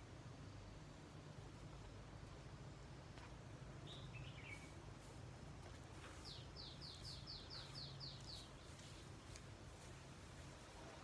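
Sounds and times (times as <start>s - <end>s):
faint low hum: 0.0s - 11.0s
songbird calling: 3.7s - 5.0s, 6.0s - 9.4s.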